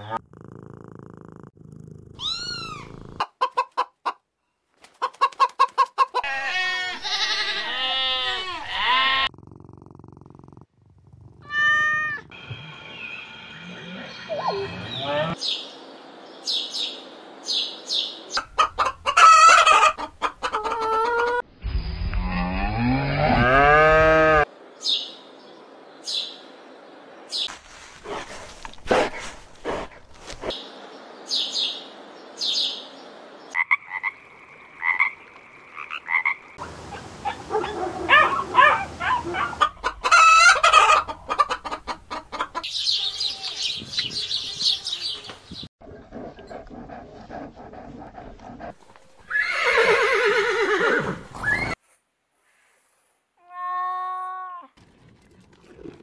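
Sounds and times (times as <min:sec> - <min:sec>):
high bird chirps: 0:42.6 - 0:45.6.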